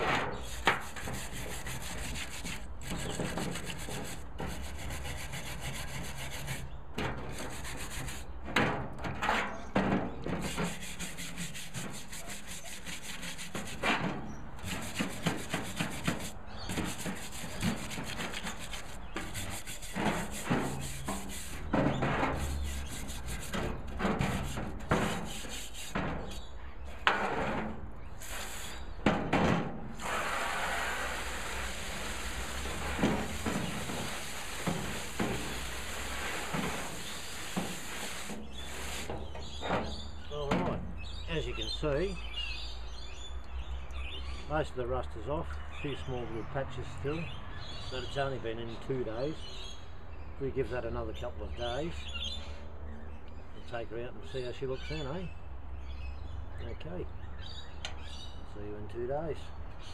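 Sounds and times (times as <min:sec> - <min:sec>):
wire brush scrubbing metal: 0:00.0 - 0:08.4, 0:10.2 - 0:29.2, 0:29.9 - 0:40.0
sharp knocks: 0:13.0 - 0:27.9.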